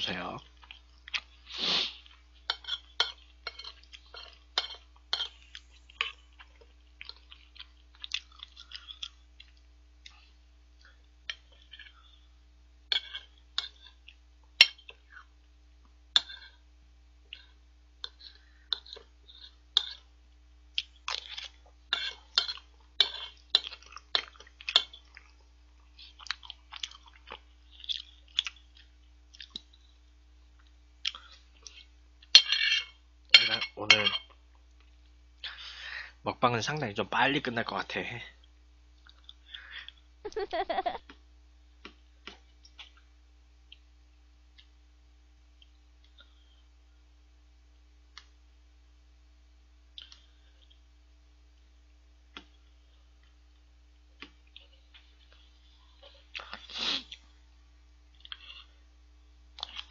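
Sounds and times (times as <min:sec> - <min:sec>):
close-miked chewing: 0:00.4 - 0:12.2, 0:20.7 - 0:30.0, 0:30.6 - 0:32.3, 0:38.4 - 0:40.6, 0:58.1 - 0:58.7, 0:59.6 - 0:59.9.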